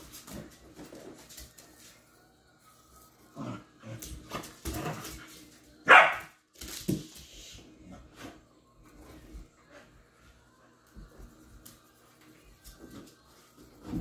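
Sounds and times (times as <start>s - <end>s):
dog barking: 5.9s - 6.3s.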